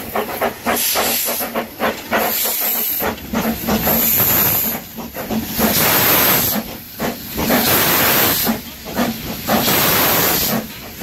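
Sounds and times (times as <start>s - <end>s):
steam hissing from drain cocks: 0.0s - 11.0s
steam locomotive exhaust chuffs: 0.0s - 11.0s.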